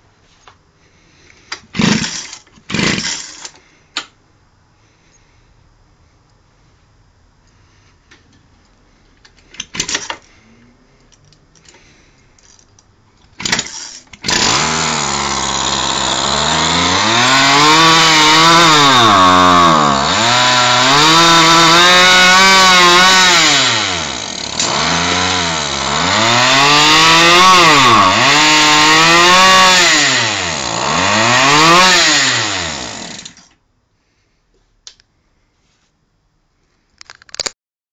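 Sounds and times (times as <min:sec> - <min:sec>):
two-stroke engine revving: 0:14.2 - 0:33.4.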